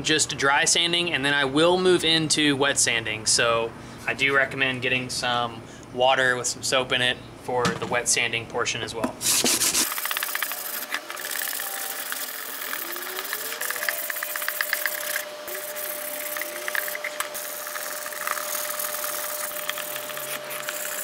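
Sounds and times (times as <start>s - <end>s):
steady hum: 9.1s - 21.0s
sandpaper scraping plastic: 9.2s - 21.0s.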